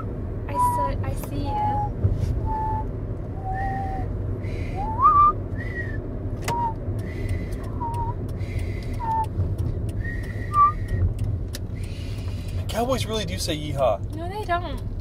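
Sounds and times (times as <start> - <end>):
low road noise rumble: 0.0 - 15.0
people whistling a tune: 1.5 - 4.1, 4.7 - 6.8, 7.7 - 8.2, 8.9 - 11.0.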